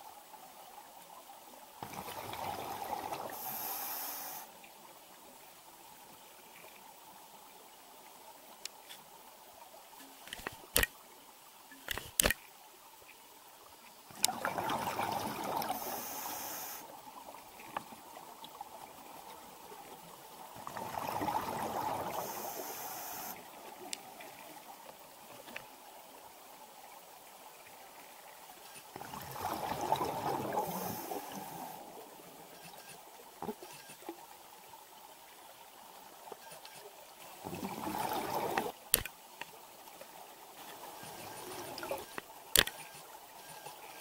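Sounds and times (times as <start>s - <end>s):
sharp clicks: 11.8s - 12.4s, 38.9s - 39.1s, 42.0s - 42.9s.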